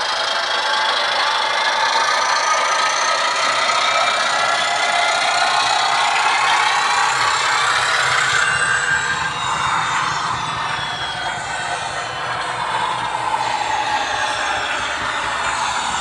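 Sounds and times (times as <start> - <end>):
diesel engine sound from small speaker: 0.0 - 16.0.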